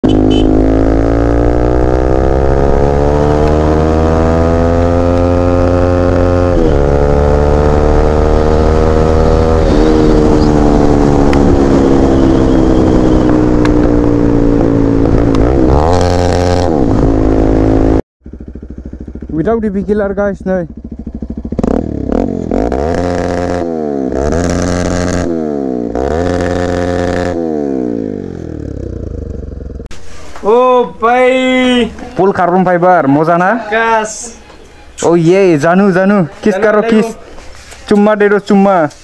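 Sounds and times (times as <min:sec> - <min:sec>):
motorcycle engine revving: 0:00.0 - 0:29.9.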